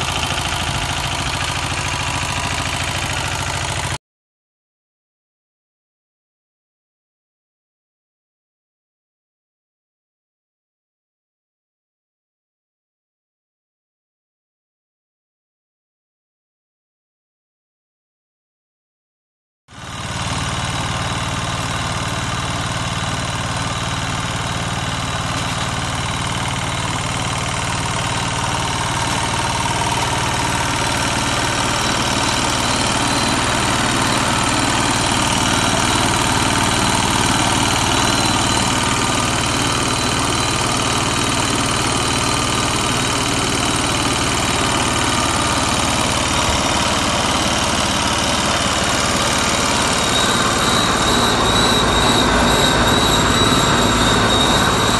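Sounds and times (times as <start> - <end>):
tractor engine running: 0.0 - 4.0, 19.7 - 54.9
thresher belts and rollers spinning: 20.4 - 54.9.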